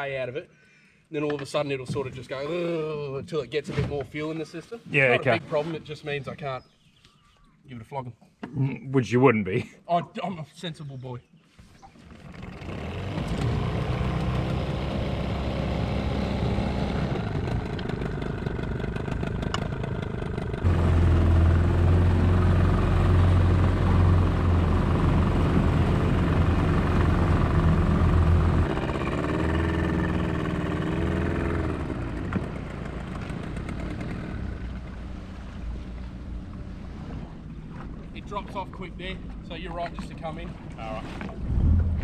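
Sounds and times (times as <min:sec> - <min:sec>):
outboard motor running: 0:11.9 - 0:38.5
water noise: 0:30.4 - 0:42.0.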